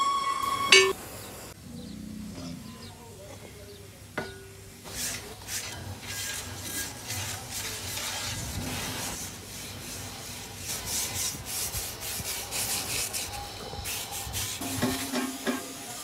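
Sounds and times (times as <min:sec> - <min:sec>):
wire brush scrubbing metal: 0:04.8 - 0:16.0.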